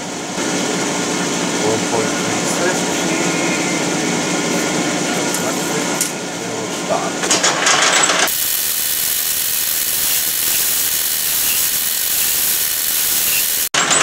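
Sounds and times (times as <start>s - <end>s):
metal lathe running: 7.6s - 14.0s.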